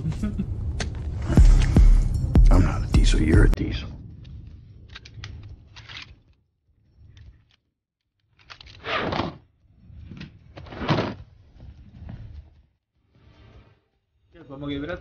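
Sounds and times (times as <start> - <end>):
low rumble: 0.0 - 5.4.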